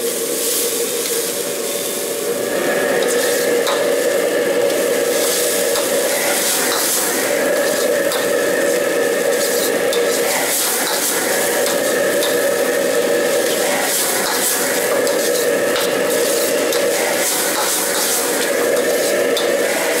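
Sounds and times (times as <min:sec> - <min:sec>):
food sizzling in a wok: 0:00.0 - 0:20.0
steady hum: 0:00.0 - 0:20.0
metal ladle scraping a wok: 0:04.7 - 0:08.7, 0:09.3 - 0:12.4, 0:13.3 - 0:20.0.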